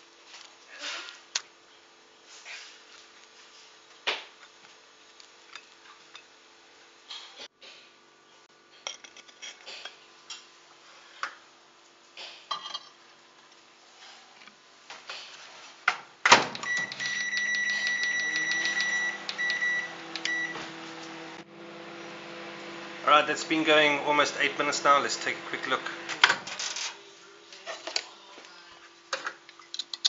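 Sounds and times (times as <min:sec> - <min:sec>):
microwave humming: 0:16.2 - 0:27.4.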